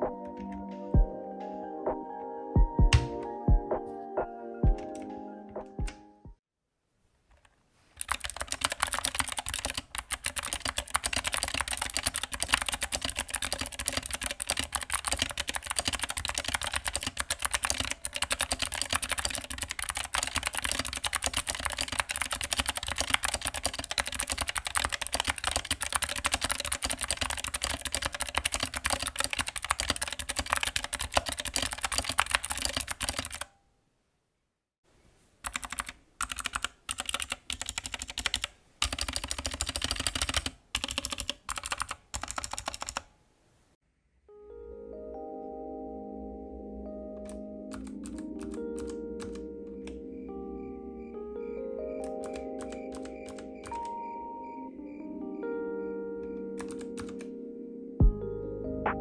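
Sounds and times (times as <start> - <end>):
clicky keyboard typing: 2.9 - 3.3, 7.3 - 33.5, 35.4 - 43.1, 47.1 - 50.0, 52.0 - 54.1, 56.2 - 57.3.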